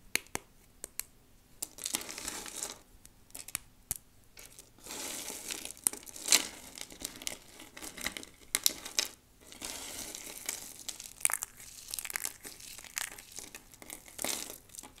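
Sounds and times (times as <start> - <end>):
dry soap crunching in hands: 4.4 - 15.0.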